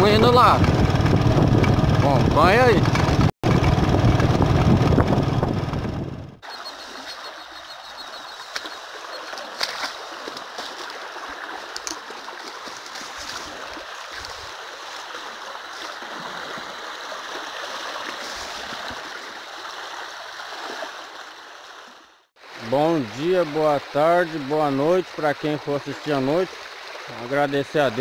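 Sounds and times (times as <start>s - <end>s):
dry grass rustling against legs: 9.5s - 16.0s
stems snapping: 9.6s - 10.9s, 11.7s - 13.5s.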